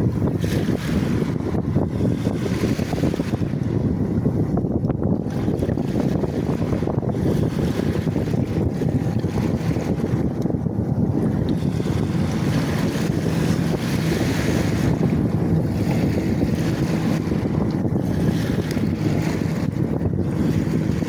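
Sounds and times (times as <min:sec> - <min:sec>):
surf washing: 0:00.0 - 0:21.0
wind buffeting microphone: 0:00.0 - 0:21.0.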